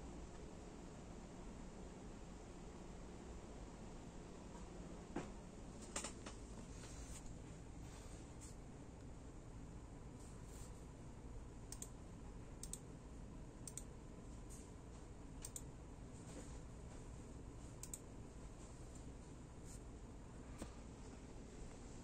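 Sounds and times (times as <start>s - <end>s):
faint room hum: 0.0s - 22.0s
computer mouse clicking: 11.7s - 12.0s, 12.6s - 12.9s, 13.6s - 13.9s, 15.4s - 15.7s, 17.8s - 18.1s.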